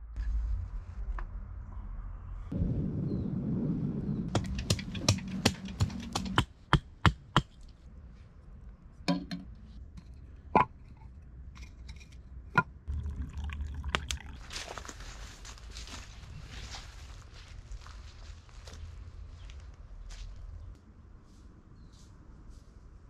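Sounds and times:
wood being chopped: 4.3s - 7.6s
soft rustle: 14.4s - 20.6s.

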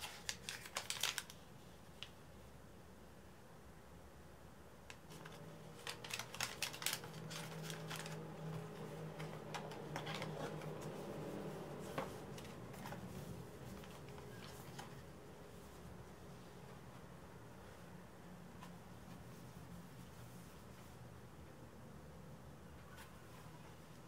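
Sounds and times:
paper and cardboard rustling: 0.0s - 1.4s, 5.1s - 15.1s.

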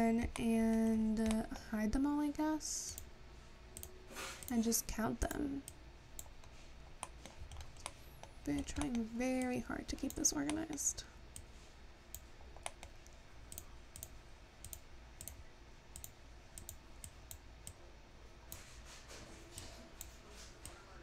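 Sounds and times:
computer mouse clicks: 0.3s - 1.4s, 3.8s - 4.6s, 5.2s - 11.5s, 12.1s - 17.8s.

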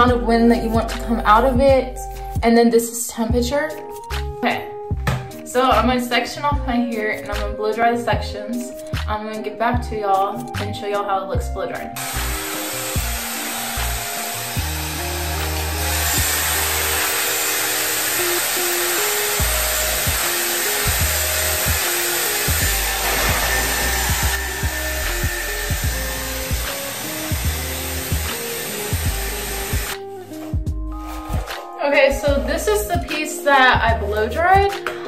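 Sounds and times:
background music: 0.0s - 35.0s
hair dryer blowing: 12.0s - 30.1s.

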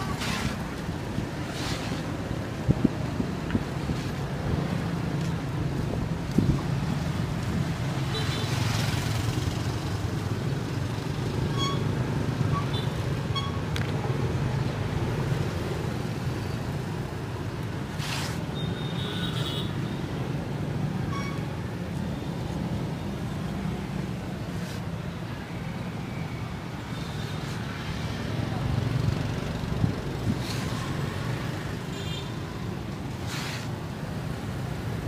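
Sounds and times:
street traffic rumble: 0.0s - 35.0s
brief hiss: 33.3s - 33.7s.

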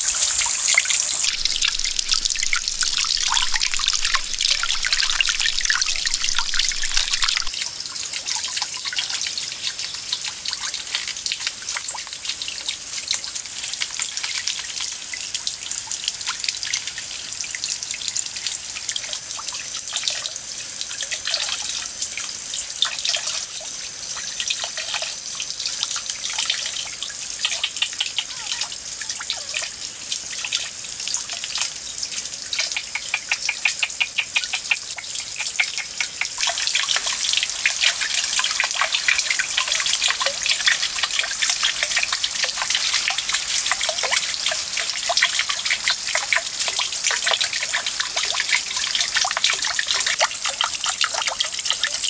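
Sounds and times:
fountain water trickling into pond: 0.0s - 52.0s.

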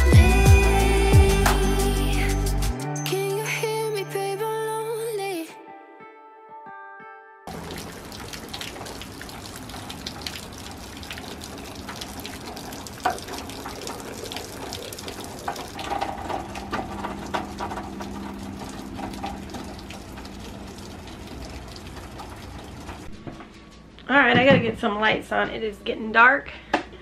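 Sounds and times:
running water: 7.5s - 23.2s
rain dripping: 7.5s - 24.0s.

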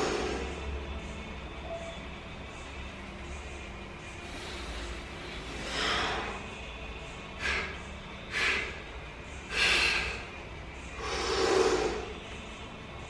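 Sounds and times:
man breathing heavily: 0.0s - 0.8s, 4.0s - 12.6s.

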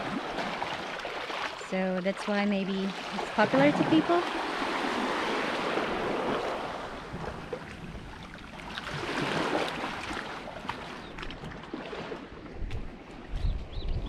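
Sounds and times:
waves washing against rocks: 0.0s - 11.1s
wind on microphone: 3.2s - 14.0s.

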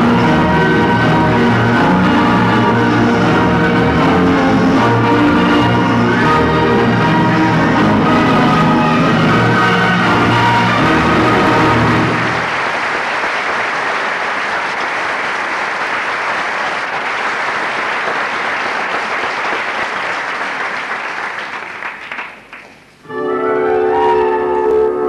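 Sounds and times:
orchestra playing: 0.0s - 12.8s, 23.0s - 25.0s
audience applauding: 0.0s - 22.9s.

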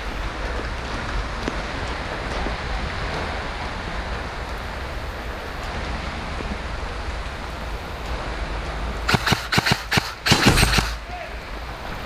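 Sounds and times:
heavy rain falling: 0.0s - 12.0s
sharp clicks and knocks: 9.1s - 11.0s.

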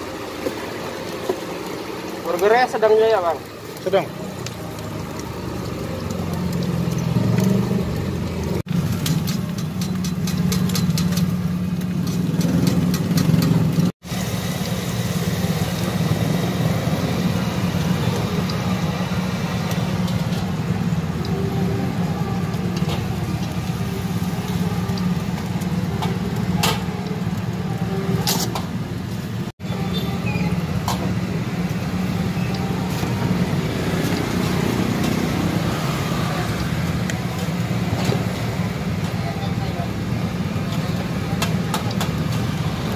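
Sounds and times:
traffic rumble: 0.0s - 42.9s
sharp clicks from cooking: 8.9s - 13.6s, 40.7s - 42.4s.

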